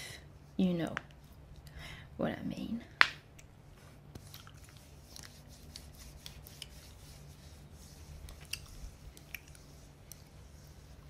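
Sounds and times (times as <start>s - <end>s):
steady low hum: 0.0s - 11.0s
hands rubbing: 3.8s - 11.0s.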